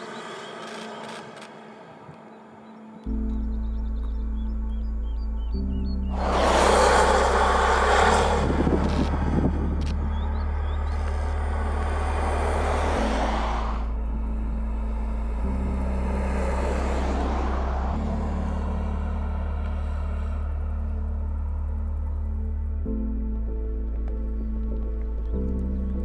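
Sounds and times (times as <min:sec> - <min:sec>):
slow bass music: 0:03.0 - 0:26.0
car driving past: 0:06.1 - 0:20.4.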